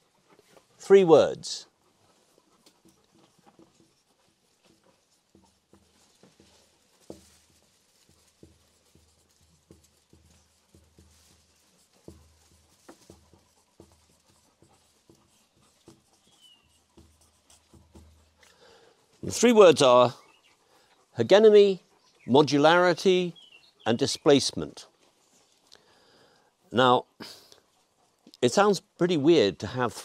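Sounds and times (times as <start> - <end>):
marker writing on paper: 8.1 - 18.4.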